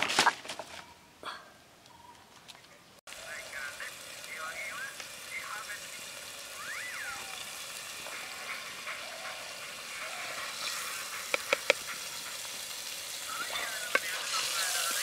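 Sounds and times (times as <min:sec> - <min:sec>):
oil sizzling in pot: 0:03.1 - 0:15.0.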